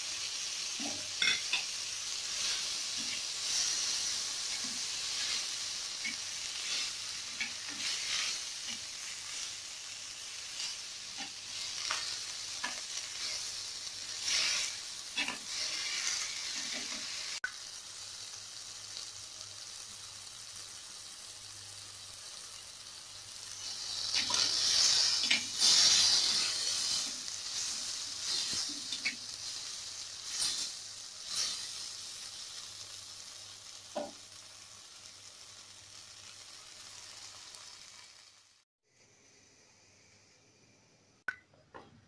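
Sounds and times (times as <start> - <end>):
vegetables sizzling in oil: 0.0 - 38.6.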